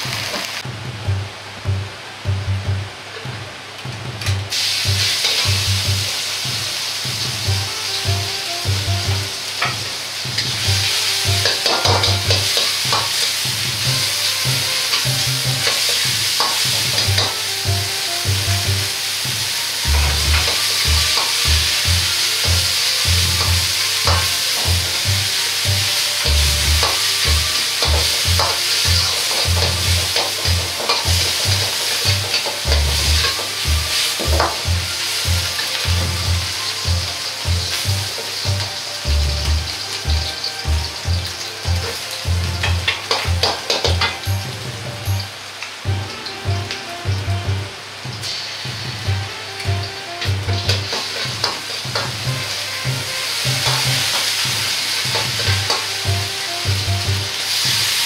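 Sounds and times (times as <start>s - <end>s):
meat sizzling in hot oil: 0.0s - 0.7s, 4.4s - 58.0s
metal ladle scraping wok: 4.3s - 6.4s, 9.6s - 18.3s, 19.8s - 38.8s.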